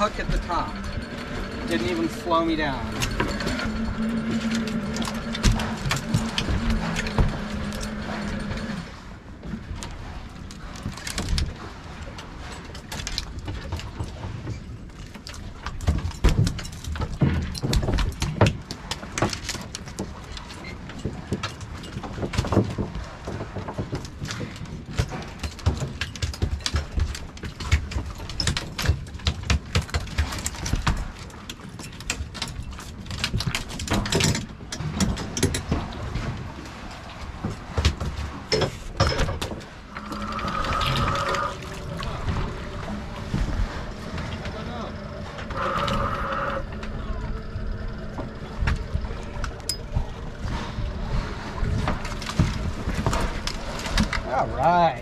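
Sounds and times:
steady tone: 0.0 - 9.1
steady low rumble: 0.0 - 12.4, 35.6 - 45.7, 46.4 - 54.6
fishing gear clattering: 0.0 - 55.0.

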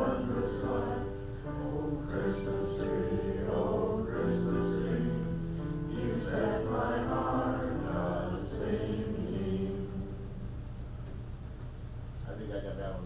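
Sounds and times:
congregation singing a hymn: 0.0 - 10.3.

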